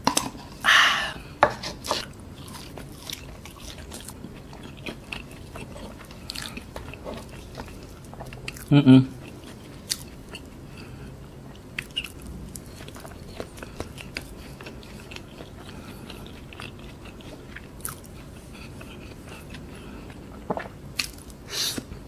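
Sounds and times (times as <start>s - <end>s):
person chewing soft food: 1.2s - 22.0s.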